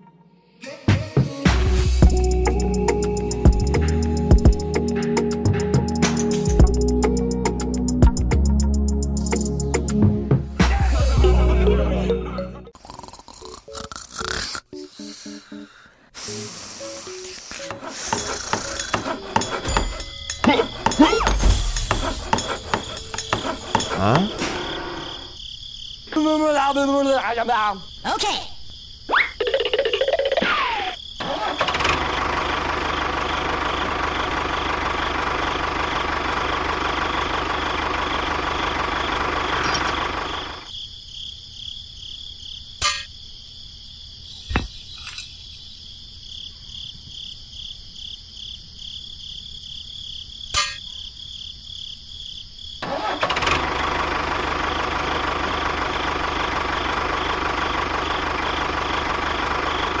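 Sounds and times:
tractor engine running: 17.3 - 25.3, 31.2 - 40.7, 52.8 - 60.0.

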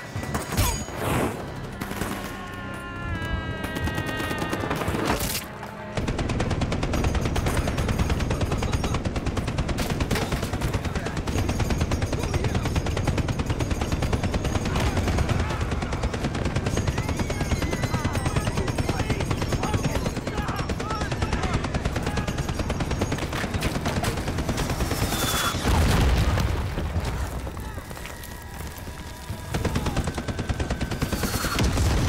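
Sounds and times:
film score: 0.0 - 32.0
machine gun firing: 3.7 - 26.4, 29.1 - 32.0.

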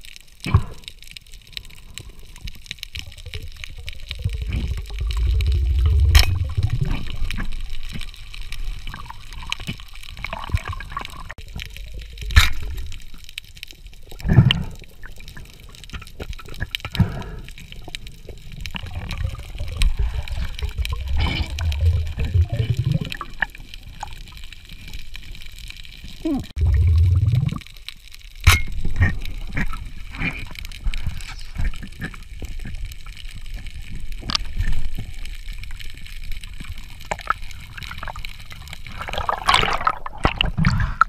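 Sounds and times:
underwater water rumbling: 0.0 - 41.0
sharp knocks underwater: 4.2 - 8.0, 39.0 - 41.0.

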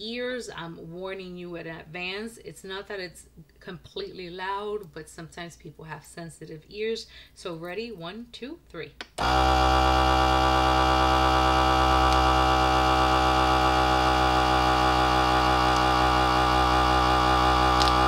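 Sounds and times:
vacuum sealer pump running: 9.2 - 18.0.

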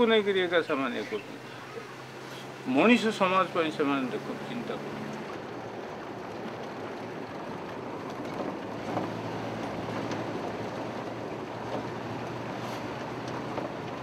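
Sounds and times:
vehicle engine hum: 0.0 - 14.0
small knocks from rough road: 4.9 - 14.0.

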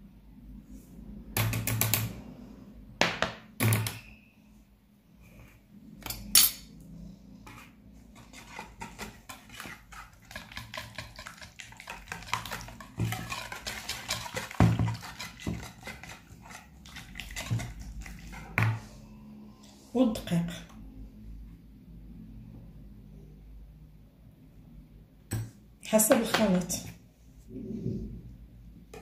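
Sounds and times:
wire whisk beating batter: 7.4 - 18.8.

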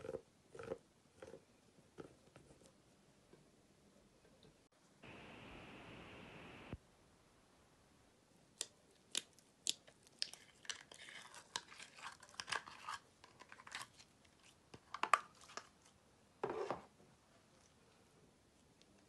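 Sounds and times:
eyeshadow crackling and crumbling: 8.6 - 16.0.

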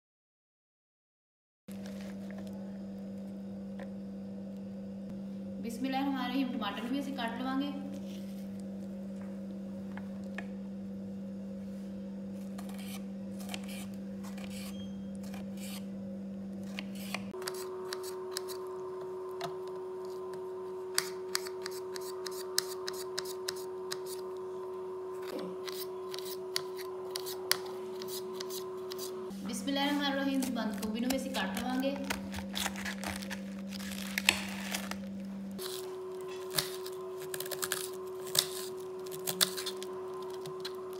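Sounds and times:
steady hum: 1.7 - 40.9
knife cutting a tomato: 12.5 - 15.9, 16.6 - 18.6, 21.0 - 24.2, 25.2 - 29.2.

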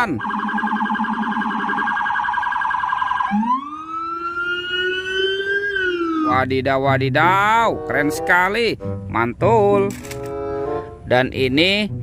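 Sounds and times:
police car siren: 0.0 - 6.4.

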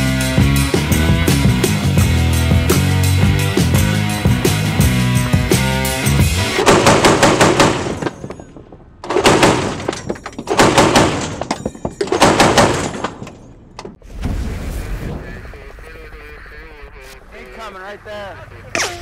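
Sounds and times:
machine gun bursts: 12.1 - 13.1.

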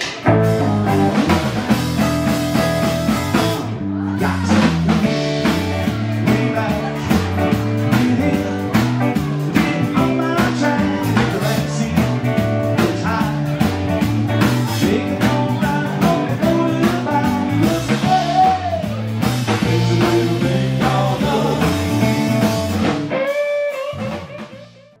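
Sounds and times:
live rock band playing: 0.0 - 25.0
man singing: 3.6 - 23.0.

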